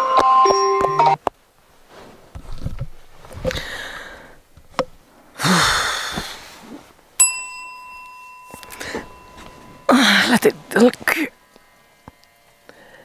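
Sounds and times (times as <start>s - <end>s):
bedding rustling and thumps: 1.6s - 5.3s, 8.0s - 11.3s
woman sighing: 5.4s - 6.3s, 8.6s - 9.2s, 9.8s - 11.2s
steady ringing tone: 7.2s - 13.0s.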